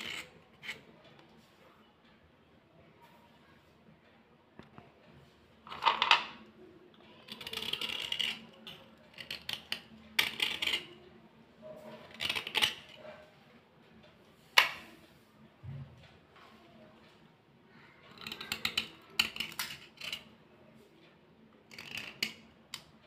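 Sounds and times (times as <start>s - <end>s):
pencils clattering on plastic tray: 5.7s - 6.5s, 12.0s - 13.0s, 18.1s - 20.3s, 21.7s - 22.9s.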